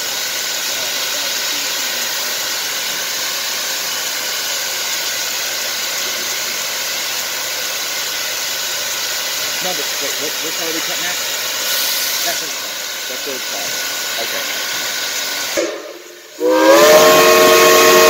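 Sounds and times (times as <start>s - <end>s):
steam hissing from locomotive: 0.0s - 18.0s.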